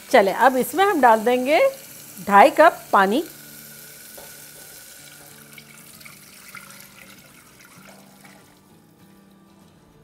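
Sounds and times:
water pouring into pot of oil: 0.0 - 8.7.

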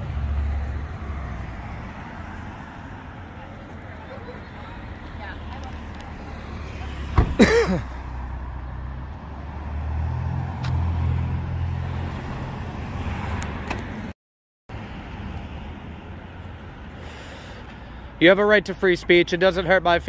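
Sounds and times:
car passing: 0.0 - 14.1.

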